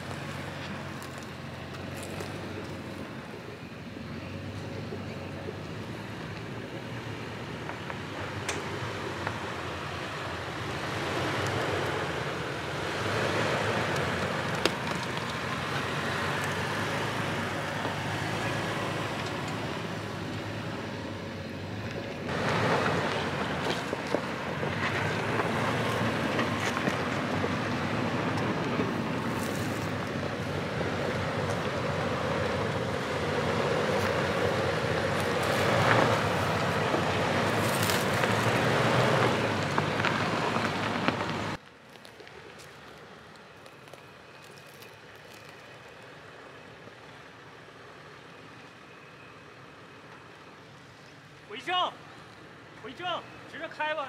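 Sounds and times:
car engine running low: 0.0s - 50.7s
tyre and trail noise: 0.0s - 54.0s
stones clicking against car: 0.1s - 2.9s, 13.9s - 15.8s, 22.8s - 27.6s, 33.8s - 46.2s.

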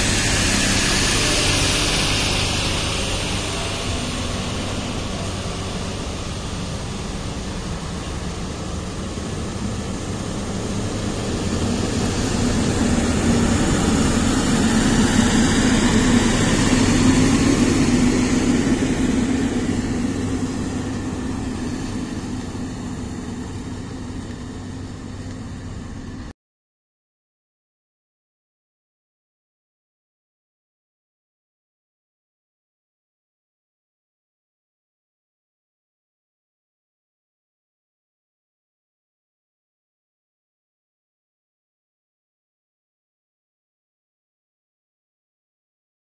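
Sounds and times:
truck diesel engine: 0.0s - 26.3s
truck tyre noise: 0.0s - 26.3s.

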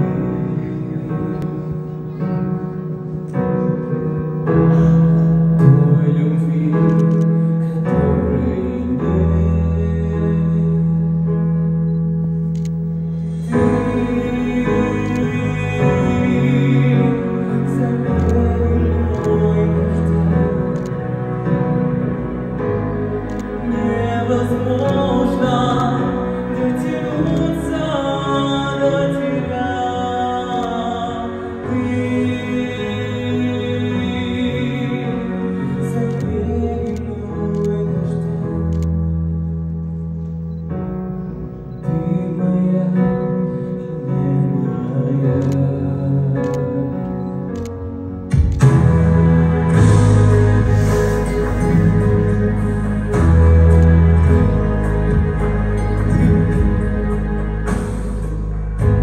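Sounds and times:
man singing slow song: 0.0s - 1.9s, 4.2s - 11.6s, 13.2s - 21.0s, 23.6s - 39.0s, 41.7s - 47.7s
slow pop ballad: 0.0s - 59.0s
sustained keyboard chords: 0.0s - 59.0s.

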